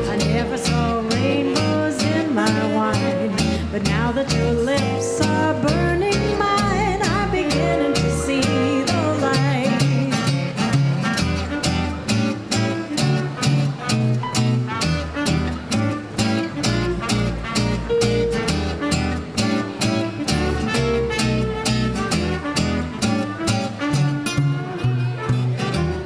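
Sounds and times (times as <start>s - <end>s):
piano: 0.0s - 26.0s
rhythm guitar: 0.0s - 26.0s
saxophone: 0.0s - 26.0s
upright bass: 0.0s - 26.0s
trumpet: 11.3s - 26.0s.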